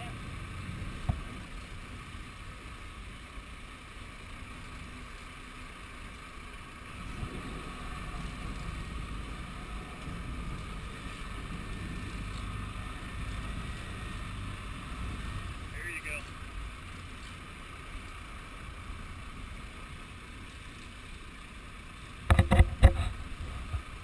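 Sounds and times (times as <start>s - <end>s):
boat engines rumbling: 0.0s - 24.0s.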